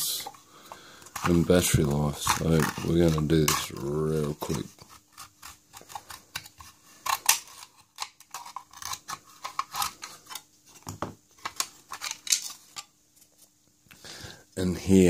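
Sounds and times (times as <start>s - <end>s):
metal tool clicking and scraping: 1.0s - 10.5s.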